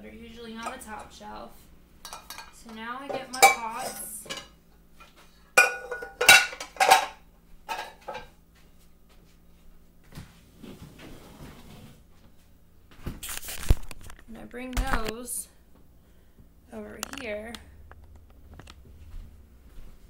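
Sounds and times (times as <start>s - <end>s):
metal pots clanking: 2.0s - 4.6s, 5.6s - 8.3s
rustling handling noise: 9.2s - 15.2s.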